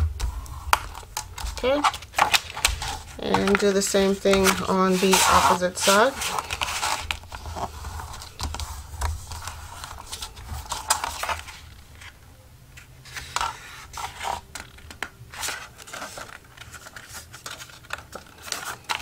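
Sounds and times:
paper rustling: 0.1s - 19.0s
bone folder scraping paper: 0.5s - 12.2s, 12.8s - 19.0s.

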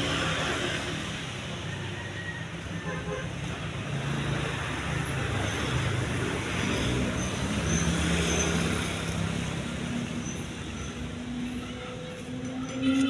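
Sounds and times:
traffic rush: 0.0s - 13.0s
vehicle engine humming: 2.6s - 13.0s.

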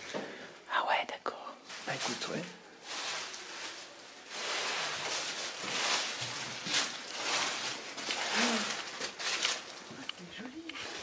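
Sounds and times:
footsteps crunching through dry leaves: 1.7s - 10.1s.

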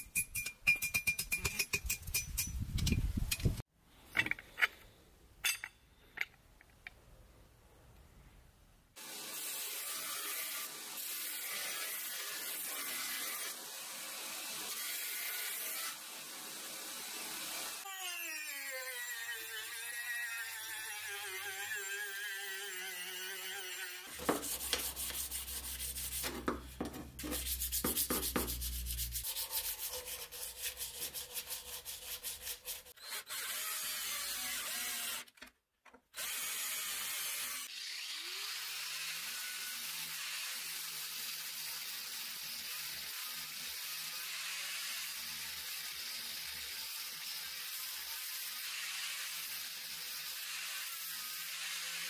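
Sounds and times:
rotary tool grinding steel: 9.0s - 35.3s, 36.2s - 52.0s
drill whining boring steel: 33.0s - 35.2s.

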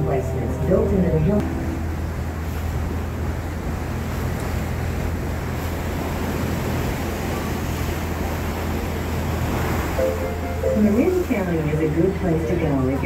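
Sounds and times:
boat engine drone: 0.0s - 13.0s
water rushing: 0.0s - 13.0s.

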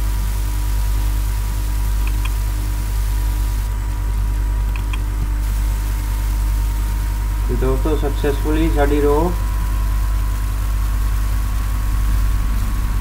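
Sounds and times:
thin high whine: 0.0s - 4.2s, 4.8s - 13.0s
low electrical hum: 0.0s - 13.0s
faint clicks: 4.6s - 5.1s.

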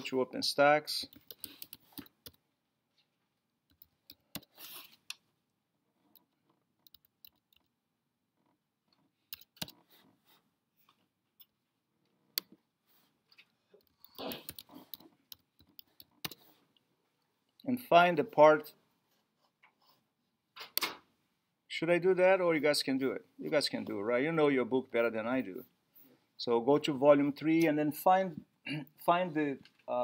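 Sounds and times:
faint keyboard typing clicks: 1.1s - 2.4s, 6.1s - 7.7s, 9.3s - 9.8s, 13.3s - 16.4s.

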